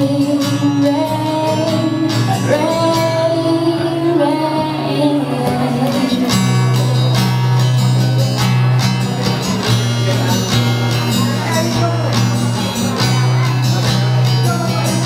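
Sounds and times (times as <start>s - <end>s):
woman singing: 0.0s - 6.5s
acoustic guitar: 0.0s - 15.0s.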